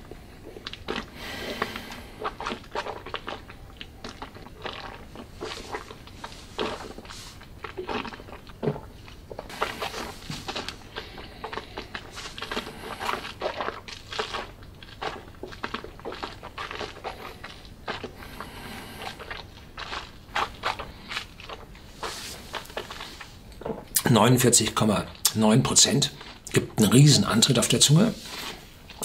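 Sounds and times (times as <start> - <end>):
wet mouth clicks and smacks: 0.5 - 18.2.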